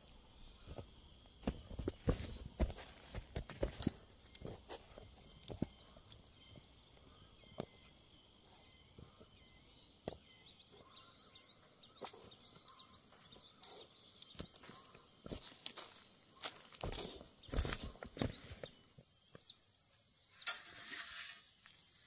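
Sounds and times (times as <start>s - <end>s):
footsteps on soft soil: 0.0s - 7.8s, 11.9s - 18.8s
birds chirping: 0.0s - 20.8s.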